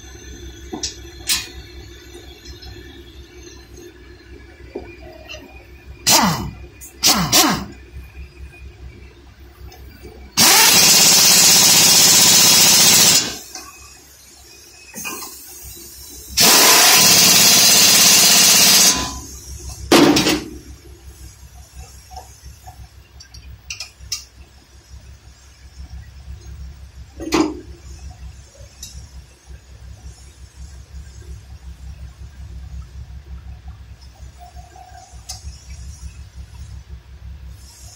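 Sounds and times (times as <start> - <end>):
pneumatic impact wrench: 6.1 - 7.8, 10.4 - 13.8, 14.9 - 20.6.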